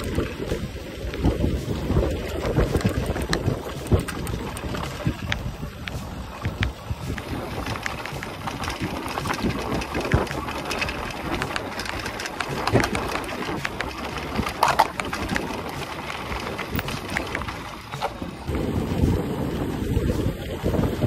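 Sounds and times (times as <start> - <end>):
bike clicks and rattles: 0.0 - 21.0
steady rumble: 0.0 - 21.0
wind buffeting microphone: 0.0 - 21.0.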